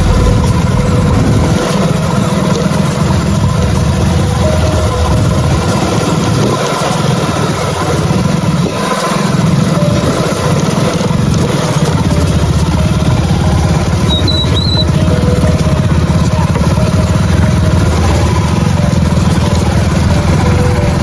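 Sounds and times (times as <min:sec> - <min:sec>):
motorcycle engine running: 0:00.0 - 0:21.0.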